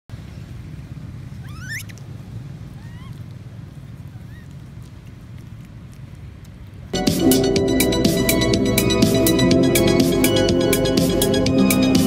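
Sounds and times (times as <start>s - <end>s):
steady low rumble: 3.6s - 12.0s.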